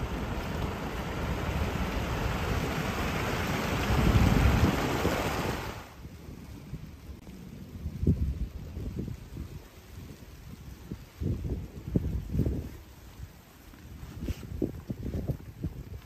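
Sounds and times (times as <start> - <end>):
river water rushing and splashing: 0.0 - 6.0.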